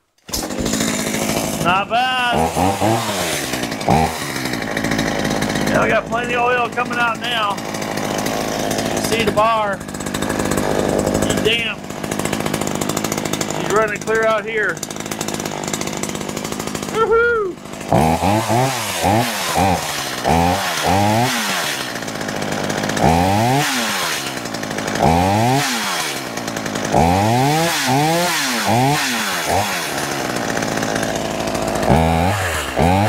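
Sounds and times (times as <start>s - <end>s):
chainsaw revving and idling: 0.1s - 33.0s.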